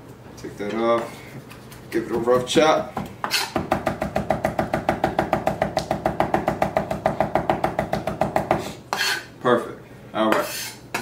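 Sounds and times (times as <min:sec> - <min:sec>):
knife chopping on wooden board: 0:03.2 - 0:09.2.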